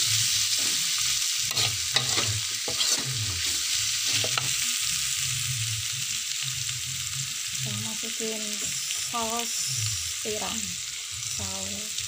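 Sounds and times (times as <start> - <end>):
food sizzling in oil: 0.0 - 12.0
metal spatula scraping a wok: 0.1 - 4.9.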